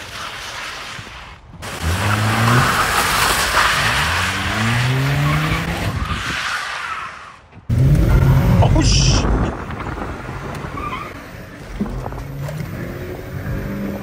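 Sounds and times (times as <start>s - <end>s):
car engine revving: 7.7s - 14.0s.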